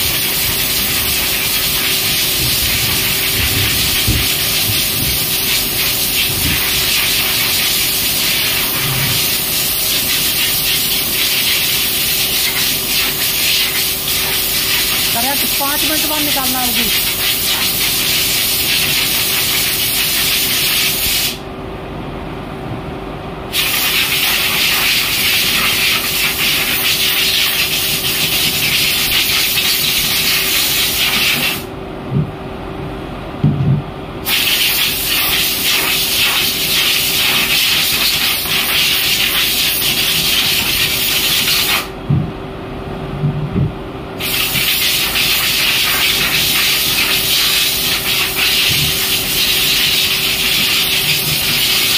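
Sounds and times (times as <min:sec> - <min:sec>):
water jets spraying: 0:00.0 - 0:21.4, 0:44.2 - 0:51.9.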